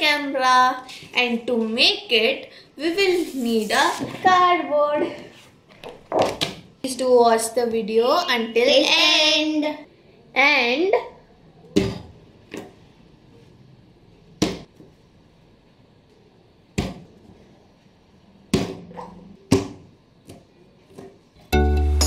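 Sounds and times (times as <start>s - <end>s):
music: 21.5s - 22.0s.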